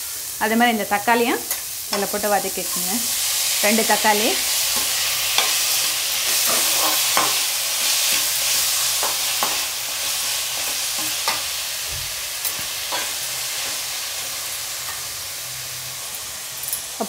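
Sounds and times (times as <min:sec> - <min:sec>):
vegetables sizzling in oil: 0:00.0 - 0:17.0
spatula scraping and tapping pan: 0:04.7 - 0:09.7, 0:10.6 - 0:11.5.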